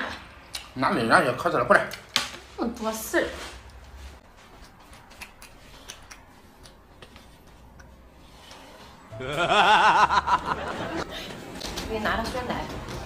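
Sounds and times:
chopsticks and paper cups clicking: 4.6s - 8.0s.

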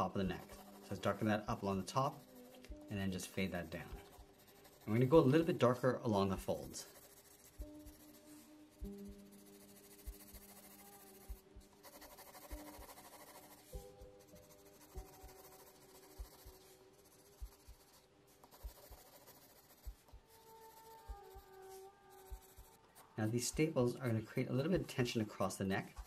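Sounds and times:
pencil scratching on paper: 0.0s - 26.0s
soft background music: 0.0s - 26.0s.

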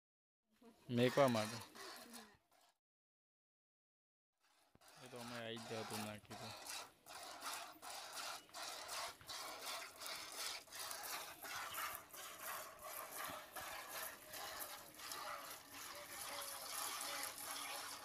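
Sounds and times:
milk squirting into plastic bucket: 4.5s - 18.0s.

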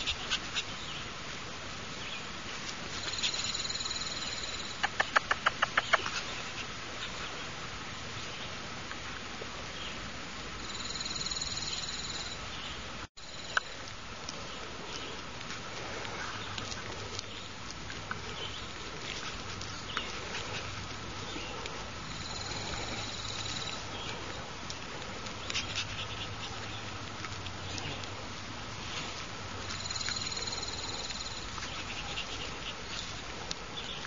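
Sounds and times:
insect trilling: 3.0s - 5.4s, 10.6s - 12.4s, 22.0s - 23.9s, 29.7s - 31.6s.

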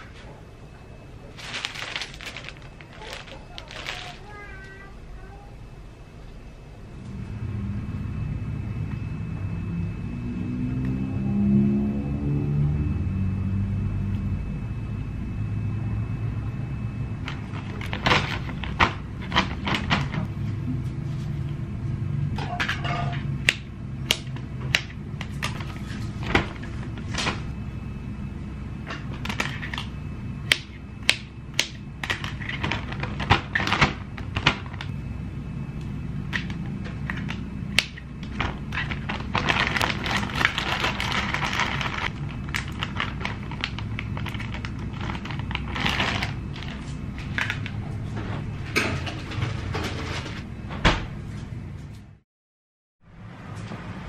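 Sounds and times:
plastic bag crinkling: 1.2s - 4.7s, 38.2s - 47.7s.

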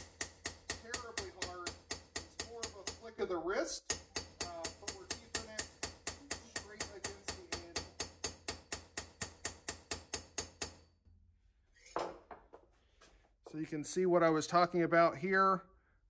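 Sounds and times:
hammer tapping steel blade: 0.0s - 3.2s, 3.8s - 10.8s.

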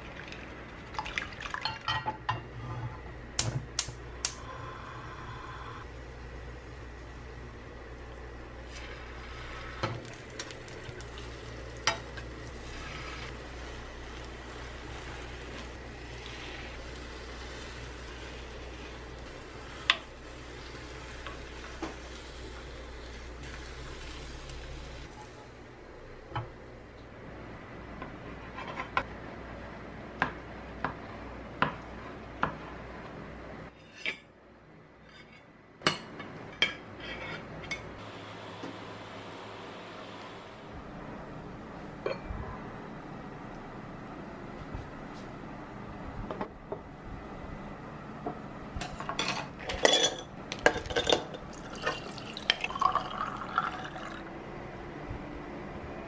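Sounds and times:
egg sizzling in a pan: 8.6s - 25.5s
utensils clinking: 49.0s - 54.2s.

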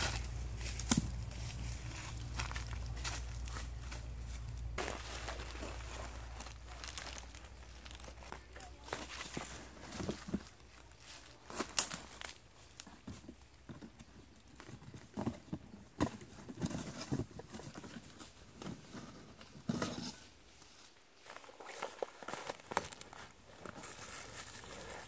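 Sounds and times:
footsteps on leafy forest floor: 0.0s - 12.8s
plastic and cardboard rustling: 0.0s - 25.0s.

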